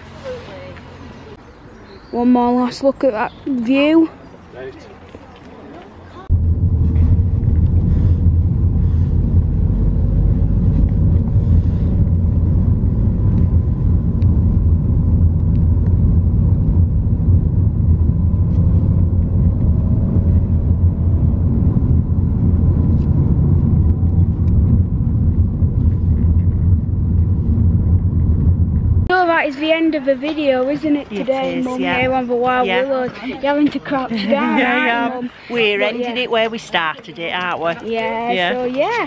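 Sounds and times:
car driving heard from inside: 6.2s - 29.1s.

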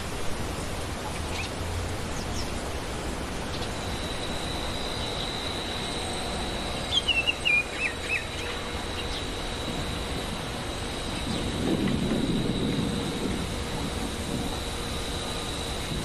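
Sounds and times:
bird singing whistled notes: 3.5s - 9.5s
thin high tone: 3.5s - 16.0s.

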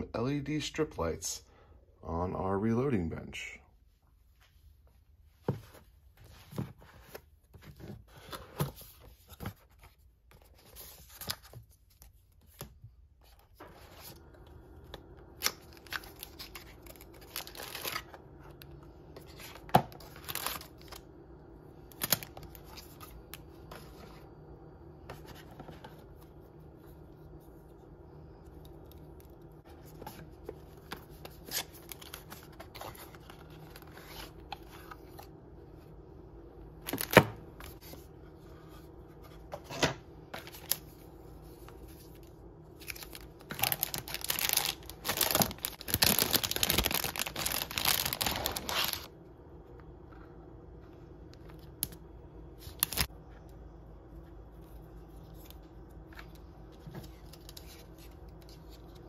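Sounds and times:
foil bag crinkling: 15.2s - 18.5s, 19.5s - 21.0s, 42.1s - 49.1s.

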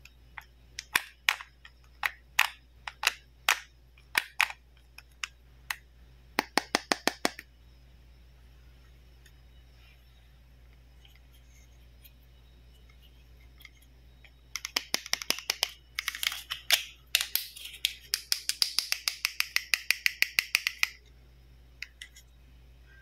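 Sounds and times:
plastic toy clicking: 0.8s - 5.8s, 14.5s - 21.0s.

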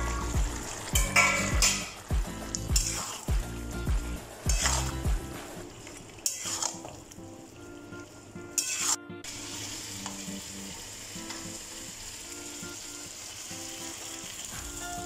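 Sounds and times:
pan sizzling: 0.0s - 15.0s
metal spatula scraping pan: 2.8s - 3.3s, 4.5s - 5.0s, 6.2s - 6.9s, 8.6s - 9.0s.

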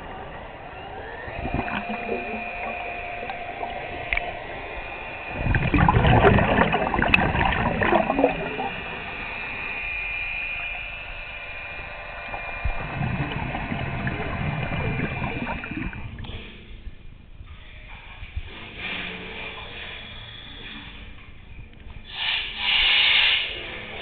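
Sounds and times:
underwater bubbles gurgling: 0.0s - 10.0s, 12.1s - 16.5s
regulator hiss: 0.0s - 17.0s, 22.1s - 24.0s.

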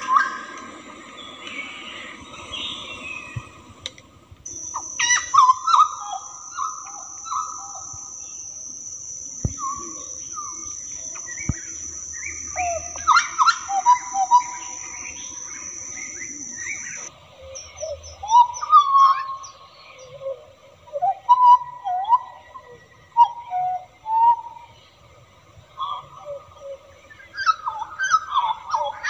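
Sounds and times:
insect high drone: 0.0s - 24.0s
bird whistling song: 4.5s - 20.2s.

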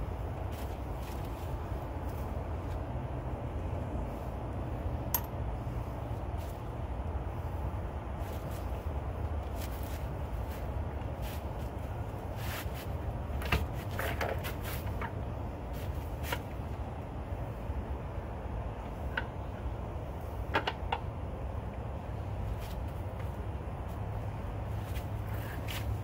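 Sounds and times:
steady low rumble: 0.0s - 13.4s
light metal knocks and clicks: 5.1s - 5.4s.

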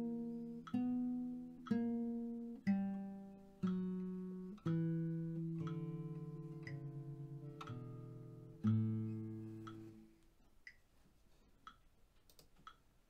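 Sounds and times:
classical guitar single notes: 0.0s - 10.1s
metronome ticking: 0.0s - 10.8s, 11.6s - 13.0s.

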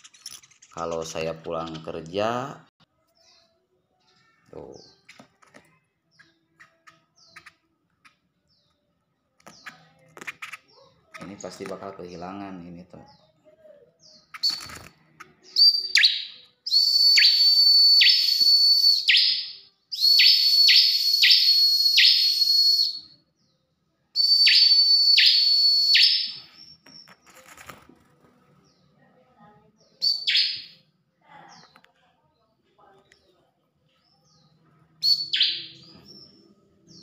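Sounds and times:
bird singing whistled song: 14.0s - 27.2s, 30.0s - 30.8s, 34.2s - 37.0s.

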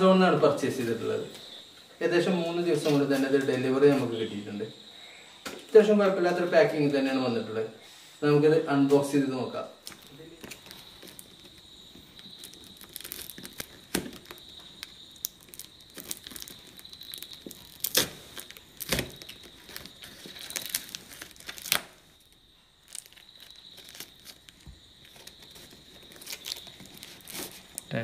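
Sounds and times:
cardboard tearing: 9.8s - 22.0s, 22.9s - 27.8s
plastic wrap crinkling and ripping: 9.8s - 28.0s.

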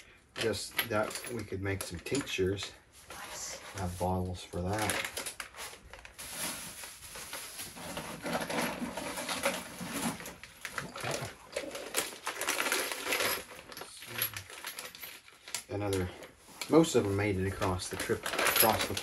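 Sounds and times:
plastic bag crinkling: 3.7s - 19.0s
glass bottles clinking: 18.0s - 19.0s.

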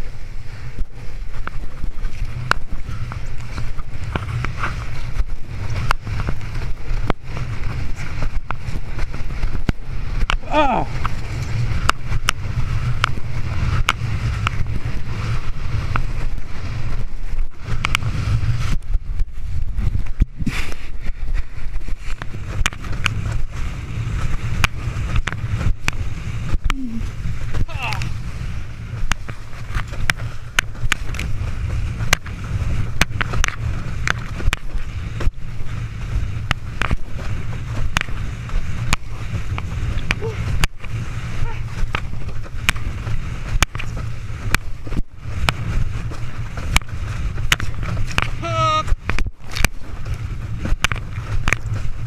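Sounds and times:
wind buffeting microphone: 0.0s - 52.0s
board slapping on water: 21.9s - 52.0s.

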